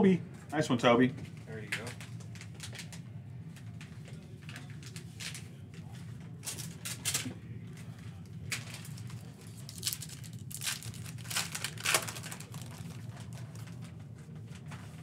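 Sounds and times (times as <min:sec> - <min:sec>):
foil pack crinkling and tearing: 0:06.4 - 0:07.3, 0:08.5 - 0:13.9.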